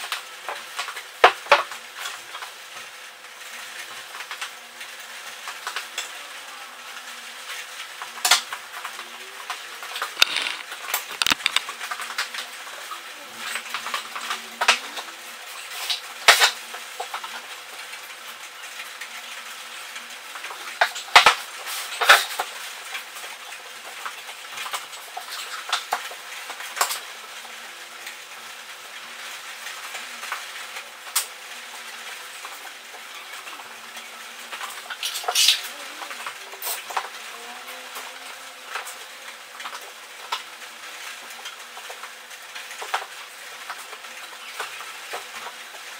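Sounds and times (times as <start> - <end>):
tools and boards clattering: 10.2 - 11.6.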